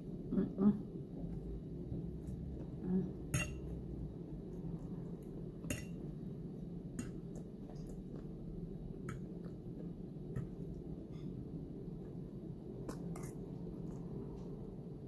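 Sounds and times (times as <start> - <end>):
low steady hum: 0.0 - 15.0
metal fork clinking on plate: 3.4 - 3.7, 5.6 - 6.0.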